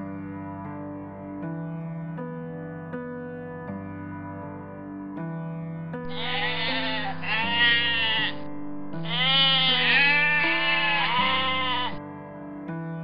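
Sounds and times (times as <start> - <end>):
sheep bleating: 6.1 - 12.0.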